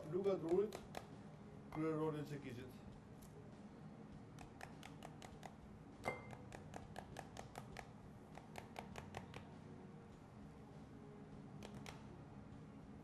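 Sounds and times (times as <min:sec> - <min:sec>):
wooden spoon knocking pomegranate: 0:00.1 - 0:01.1.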